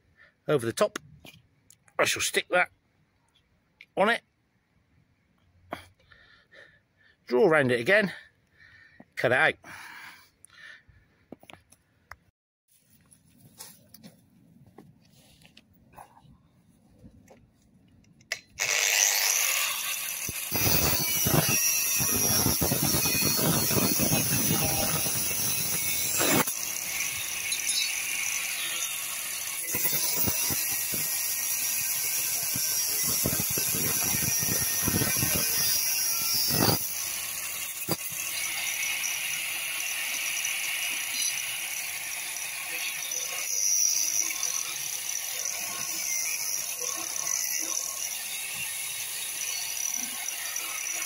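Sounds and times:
angle grinder whining: 18.3s - 51.0s
grinder disc cutting metal: 18.3s - 51.0s.

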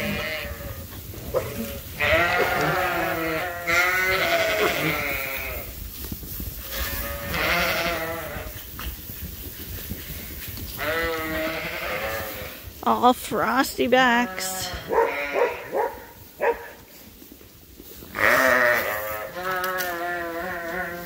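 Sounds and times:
sheep bleating: 0.0s - 5.7s, 6.7s - 8.5s, 10.8s - 12.6s, 14.2s - 15.7s, 18.2s - 21.0s.

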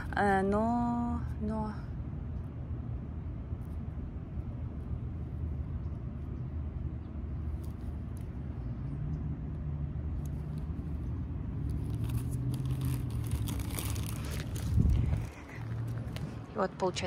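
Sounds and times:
low engine rumble: 0.0s - 17.0s
rustling and crackling: 10.2s - 17.0s.

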